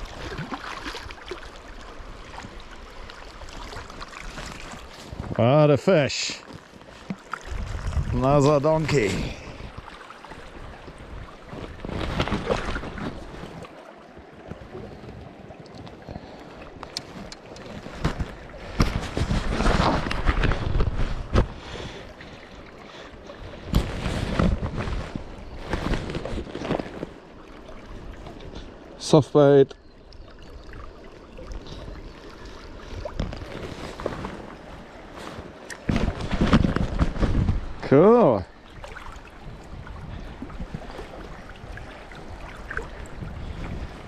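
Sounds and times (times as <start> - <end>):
splashing in shallow water: 0.0 - 5.7, 6.4 - 44.0
wind buffeting microphone: 7.4 - 9.8, 17.6 - 22.1, 35.7 - 44.0.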